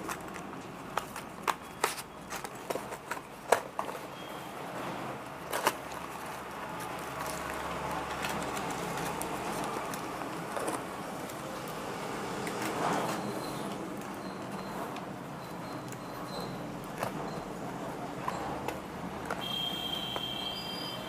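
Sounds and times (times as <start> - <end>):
packets and boxes clicking: 0.0 - 4.3, 5.2 - 11.8.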